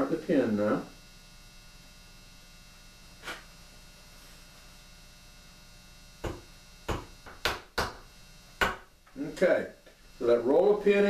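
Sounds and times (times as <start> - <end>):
mains hum: 0.0 - 11.0.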